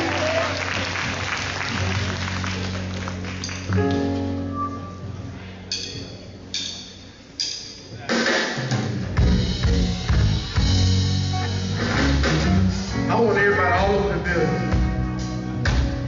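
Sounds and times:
band playing driving groove: 5.6s - 16.0s.

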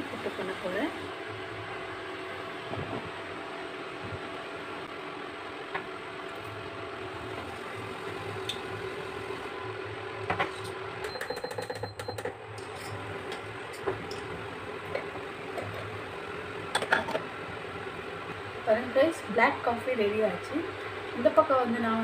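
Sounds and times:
induction cooktop humming: 0.0s - 22.0s.

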